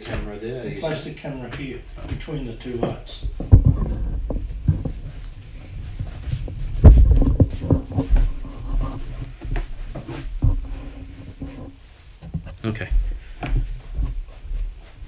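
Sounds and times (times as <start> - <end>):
phone handling bumps and knocks: 2.0 - 8.4.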